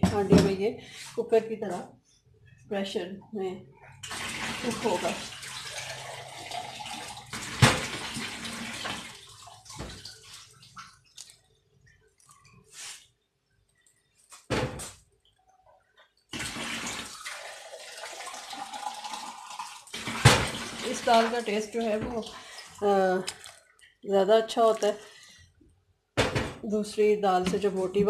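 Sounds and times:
water pouring and splashing: 3.9s - 13.1s, 16.2s - 23.8s.

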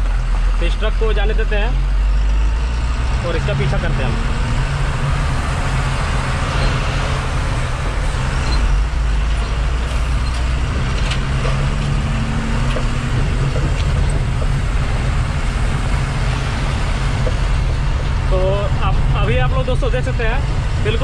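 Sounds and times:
diesel engine running: 0.0s - 21.0s
tyres rumbling on gravel: 2.8s - 21.0s.

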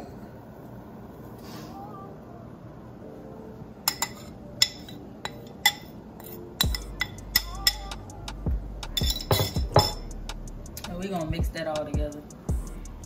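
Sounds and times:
metal spoon clinking on bowl: 3.9s - 7.9s, 9.0s - 10.1s.

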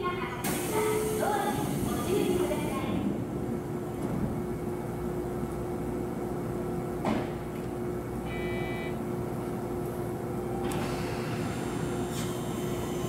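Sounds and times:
train equipment humming: 0.0s - 13.0s.

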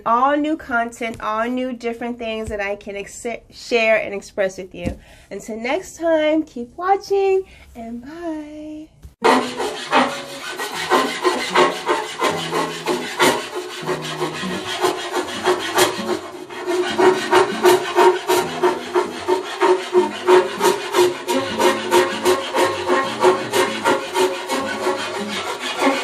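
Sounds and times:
hand file rasping on board: 9.2s - 26.0s.

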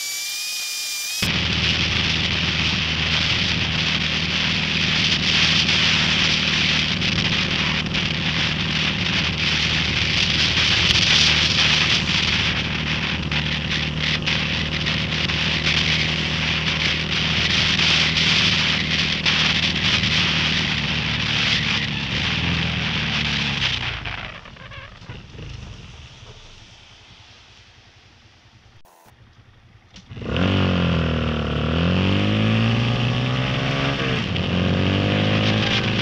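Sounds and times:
wind noise: 1.2s - 27.0s
motorcycle engine running: 1.2s - 36.0s
wet road rush: 1.3s - 36.0s.

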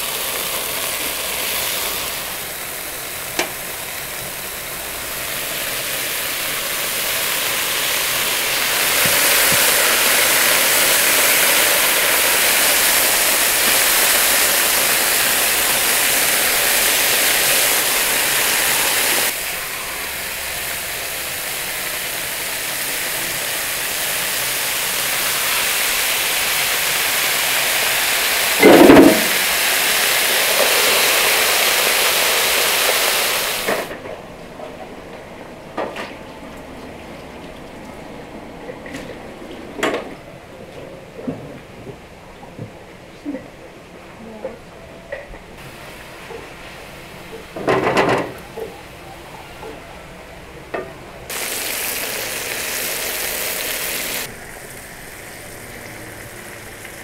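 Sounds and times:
food sizzling on a griddle: 0.0s - 33.9s, 45.6s - 48.4s, 51.3s - 57.0s.

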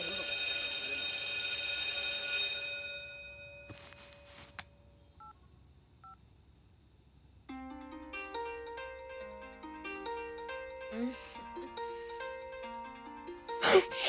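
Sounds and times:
electric bell ringing: 0.0s - 4.0s.

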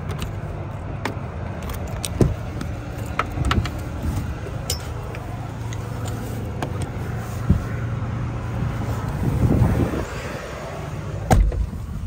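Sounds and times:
low engine rumble: 0.0s - 12.0s
wind buffeting microphone: 7.4s - 10.8s.

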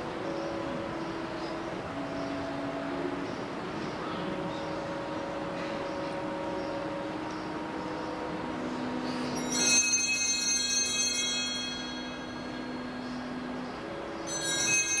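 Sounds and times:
low steady tone: 0.0s - 15.0s
altar bells ringing: 8.9s - 15.0s.

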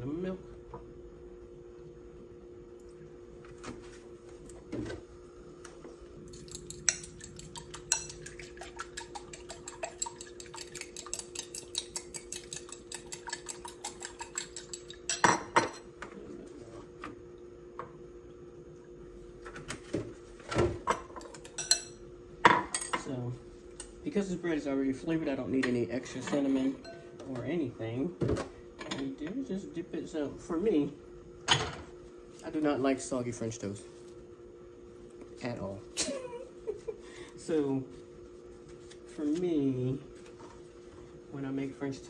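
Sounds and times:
steady low hum: 0.0s - 42.0s
utensil clinking against glass bowl: 6.3s - 15.8s, 21.2s - 22.0s.

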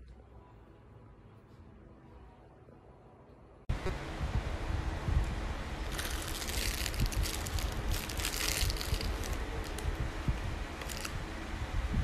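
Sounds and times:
steady low rumble: 3.7s - 12.0s
plastic packaging crinkling: 5.9s - 10.0s, 10.8s - 11.2s.

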